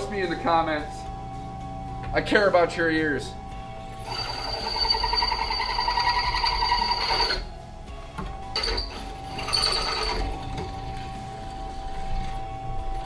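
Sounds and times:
drill bit squealing in steel: 0:04.0 - 0:07.5, 0:08.6 - 0:10.4.

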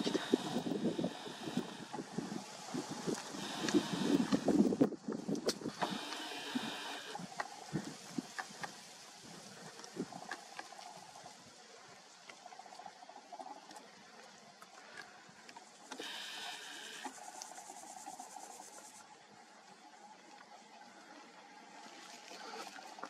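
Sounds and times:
camera zoom motor whine: 0:03.4 - 0:04.5.

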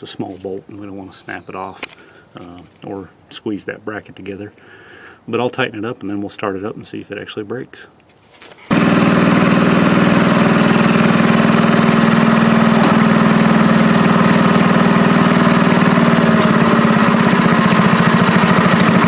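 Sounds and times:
garden tractor engine running: 0:08.6 - 0:19.0.

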